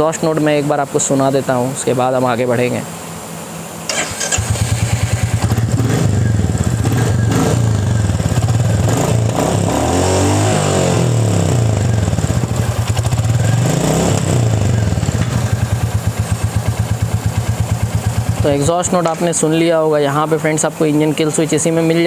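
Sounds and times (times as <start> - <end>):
motorcycle engine revving: 3.9 - 19.4
motorcycle engine starting and idling: 3.9 - 20.2.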